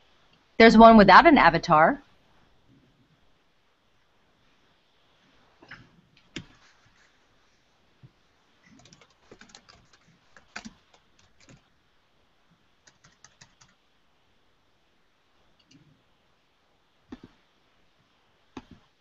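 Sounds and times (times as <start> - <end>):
faint typing on keyboard: 6.2 - 7.2, 8.1 - 11.8, 12.5 - 13.9, 15.5 - 16.0, 17.1 - 17.4.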